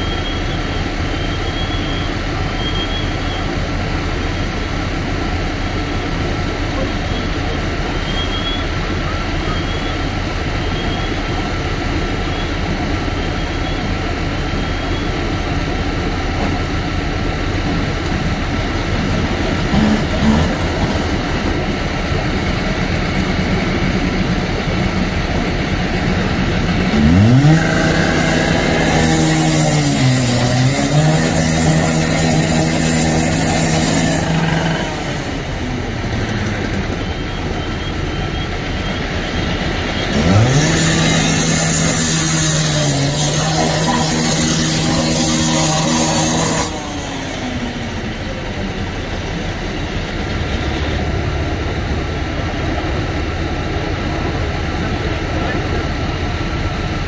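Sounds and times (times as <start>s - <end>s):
fire truck engine and pump drone: 0.0s - 57.0s
cut-off saw revving: 15.6s - 37.4s, 38.6s - 52.3s
blade grinding through steel: 26.4s - 35.6s, 40.0s - 48.0s.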